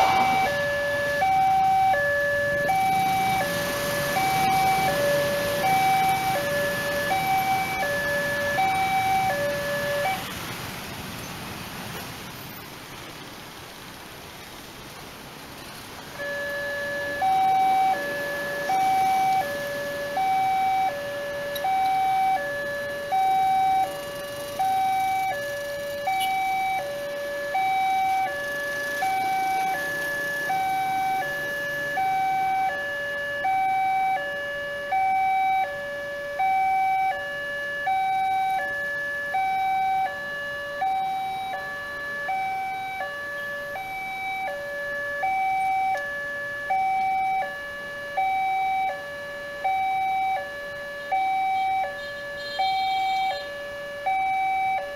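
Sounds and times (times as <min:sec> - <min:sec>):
level crossing two-tone alarm: 0:00.0 - 0:10.2, 0:16.2 - 0:54.9.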